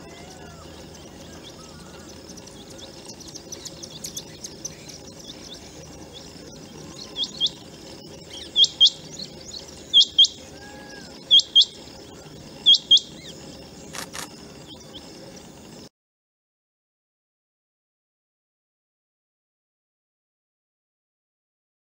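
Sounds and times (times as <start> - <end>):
faint bird chirps: 0.0 - 15.9.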